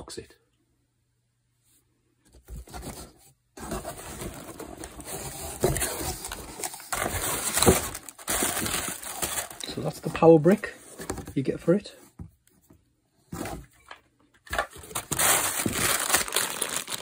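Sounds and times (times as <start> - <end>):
packaging rustling and crinkling: 2.5 - 11.4, 14.5 - 17.0.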